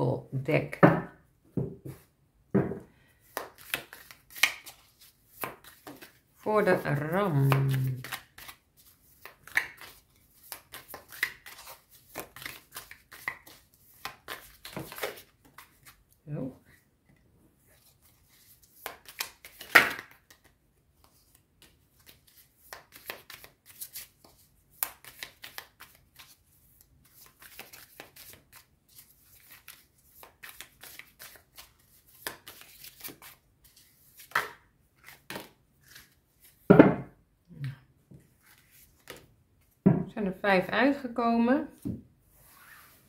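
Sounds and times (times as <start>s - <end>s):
cards shuffling and rustling: 3.2s - 16.2s, 17.6s - 36.7s, 38.3s - 39.8s.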